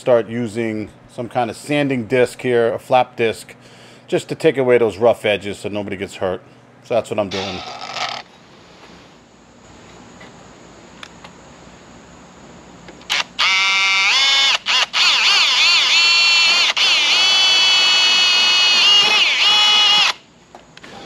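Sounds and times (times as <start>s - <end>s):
drill whining through sheet metal: 13.1s - 20.3s.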